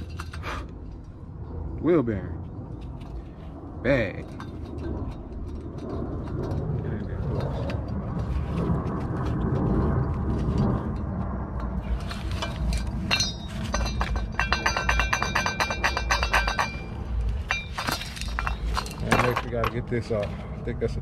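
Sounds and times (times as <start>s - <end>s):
low rumble of handling noise: 0.0s - 21.0s
metallic clicking and clinking: 4.1s - 8.0s, 10.6s - 20.0s.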